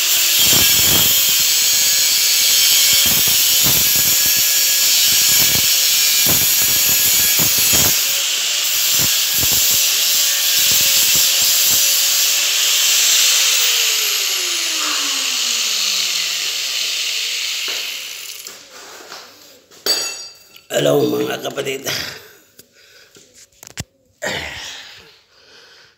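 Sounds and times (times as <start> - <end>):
grinder disc spinning down: 0.0 - 18.8
angle grinder grinding metal: 0.0 - 22.2.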